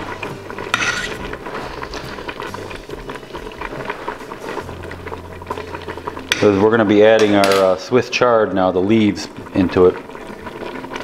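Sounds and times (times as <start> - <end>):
stew bubbling in a pot: 0.0 - 11.0
fork clinking against pot: 0.7 - 1.2.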